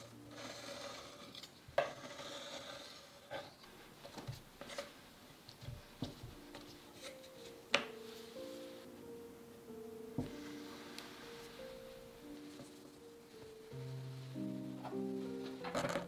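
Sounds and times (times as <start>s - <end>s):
tools knocking and scraping on mat: 5.6s - 8.0s, 10.2s - 10.4s.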